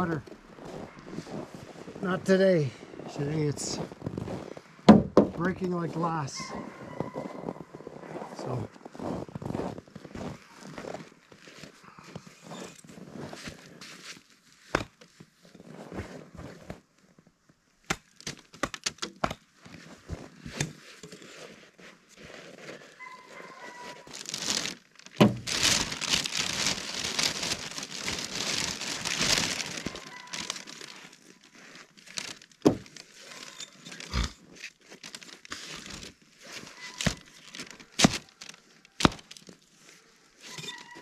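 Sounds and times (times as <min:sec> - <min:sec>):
plastic bag crinkling: 0:23.3 - 0:39.6.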